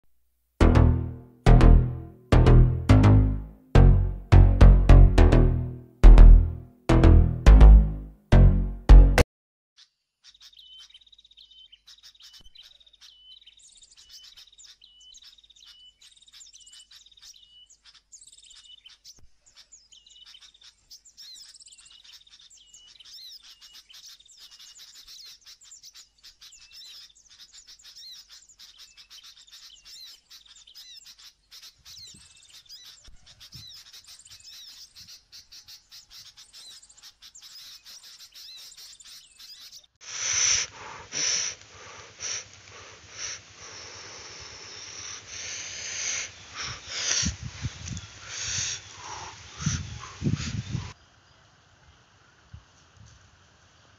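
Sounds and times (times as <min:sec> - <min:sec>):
small birds chirping: 0:09.8 - 0:51.5.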